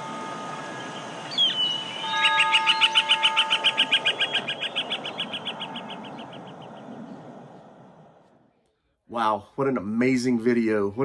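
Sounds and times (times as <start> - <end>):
bird chirping and trilling: 0.0 - 7.8
steady held tone: 0.0 - 8.6.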